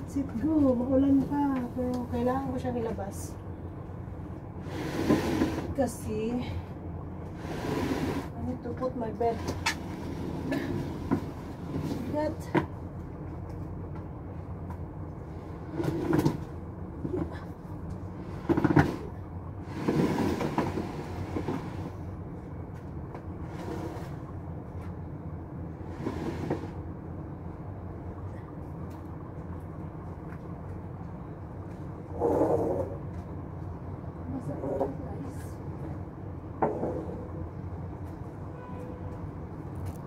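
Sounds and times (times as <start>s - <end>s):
steady low rumble: 0.0s - 40.0s
rustling scrape on cloth: 7.4s - 8.3s.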